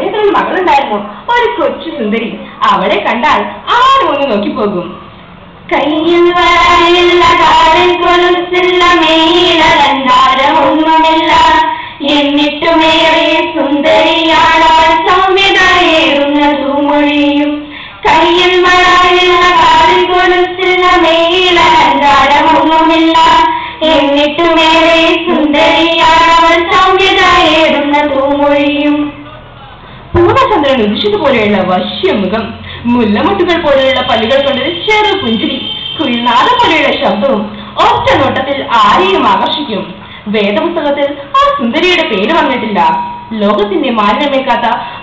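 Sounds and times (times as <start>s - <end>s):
girl singing into microphone: 5.7s - 29.2s, 37.4s - 45.0s.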